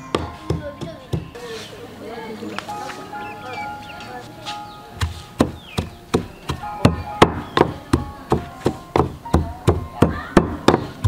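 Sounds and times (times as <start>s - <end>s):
wooden pestle pounding in mortar: 0.1s - 1.4s, 5.0s - 11.0s.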